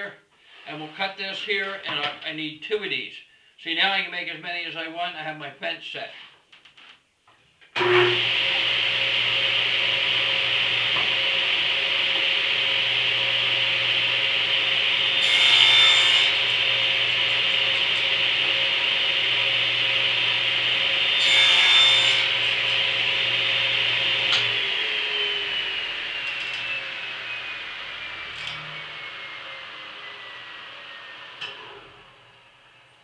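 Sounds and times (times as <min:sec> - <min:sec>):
table saw cutting wood: 0:07.8 - 0:32.9.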